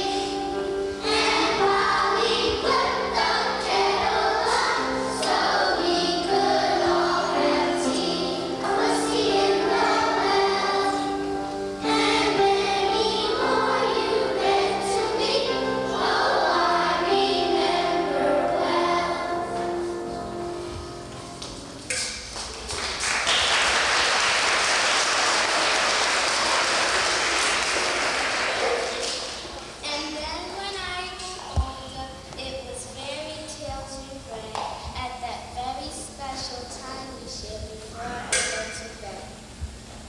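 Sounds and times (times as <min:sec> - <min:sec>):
children's choir singing: 0:00.0 - 0:21.2, 0:24.0 - 0:29.7
instrumental accompaniment: 0:00.0 - 0:22.6.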